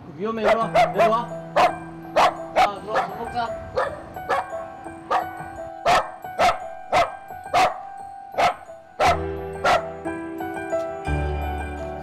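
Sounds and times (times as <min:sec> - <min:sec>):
background music: 0:00.3 - 0:12.0
dog barking: 0:00.4 - 0:03.2, 0:03.8 - 0:09.9.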